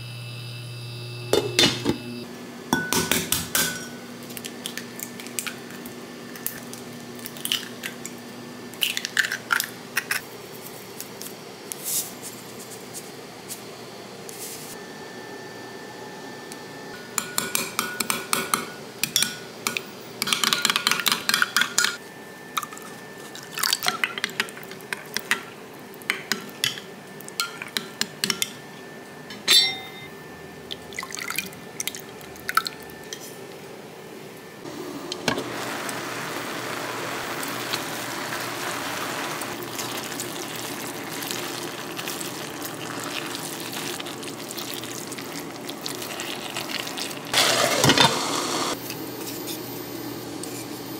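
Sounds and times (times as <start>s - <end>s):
metal spoon clinking against glass: 29.3s - 30.1s.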